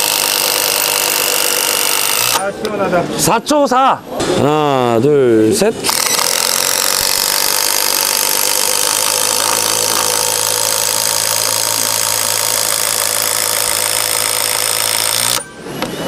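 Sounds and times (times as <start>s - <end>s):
impact driver hammering screw into wood: 5.9s - 15.5s.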